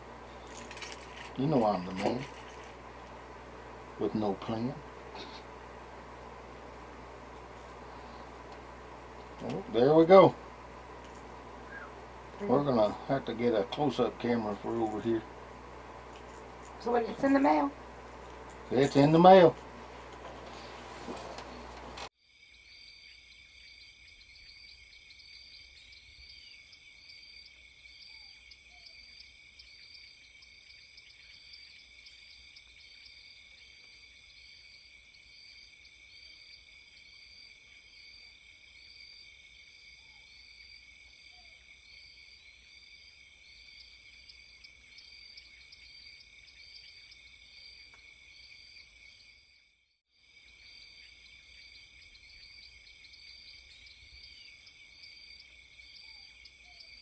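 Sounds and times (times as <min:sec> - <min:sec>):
insect drone: 0:00.0 - 0:57.0.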